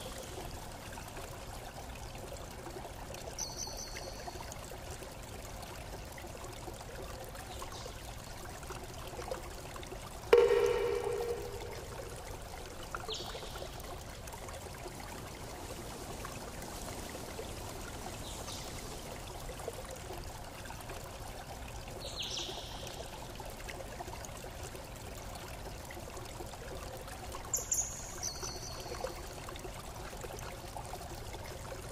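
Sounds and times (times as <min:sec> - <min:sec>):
loud ringing tone: 0:10.4 - 0:12.2
steady rushing hiss: 0:15.1 - 0:19.6.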